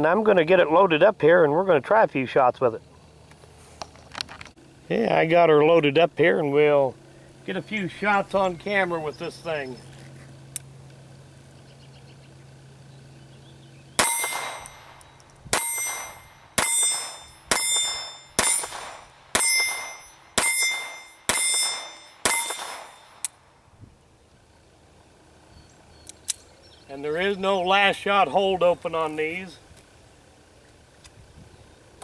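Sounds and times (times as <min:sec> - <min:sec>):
pistol shots with ringing tail: 0:14.0 - 0:23.4.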